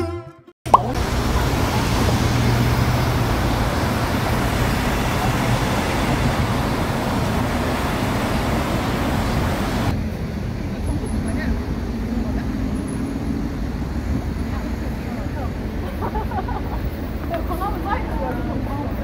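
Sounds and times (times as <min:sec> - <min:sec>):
low hum: 0:00.7 - 0:09.9
road traffic passing: 0:00.7 - 0:10.7.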